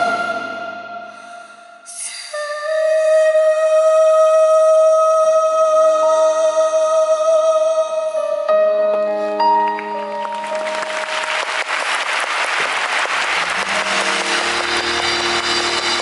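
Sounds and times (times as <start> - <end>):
crowd applauding and cheering: 9.6 - 16.0
band held notes: 13.4 - 16.0.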